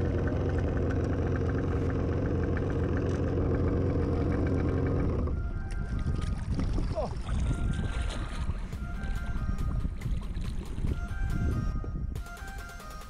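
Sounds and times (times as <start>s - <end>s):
jet ski engine idling: 0.0s - 5.8s.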